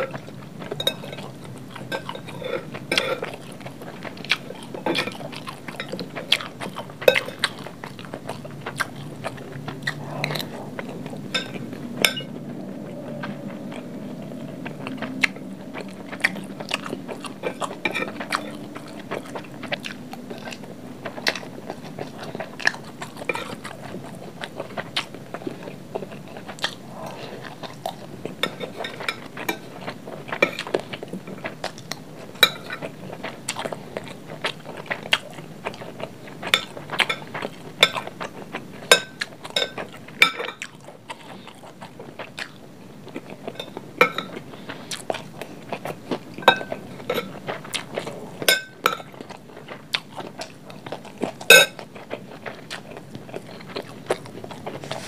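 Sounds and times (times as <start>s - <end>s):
chewing and crunching: 0.0s - 55.0s
metal spoon clinking on glass plate: 11.4s - 12.3s.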